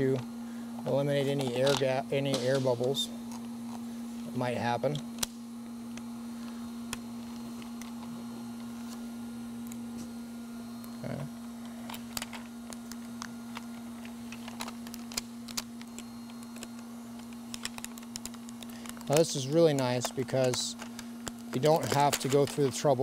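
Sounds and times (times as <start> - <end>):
steady hum: 0.0 - 23.0
release film peeling crackles: 11.9 - 22.9.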